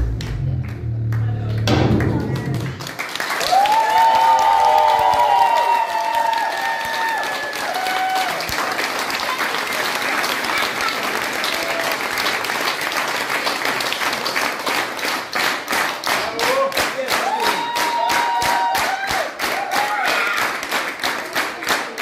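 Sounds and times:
rhythmic clapping in unison: 0:00.0 - 0:22.0
audience applauding: 0:00.2 - 0:22.0.

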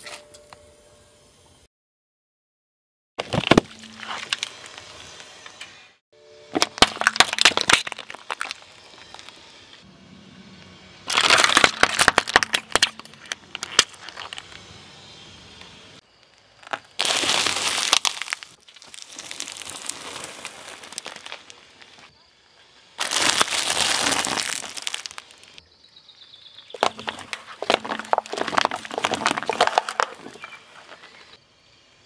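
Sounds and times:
tyre crushing plastic packaging: 0:03.2 - 0:04.9, 0:06.6 - 0:09.4, 0:11.1 - 0:14.6, 0:16.6 - 0:22.1, 0:23.0 - 0:25.6, 0:26.8 - 0:31.2.

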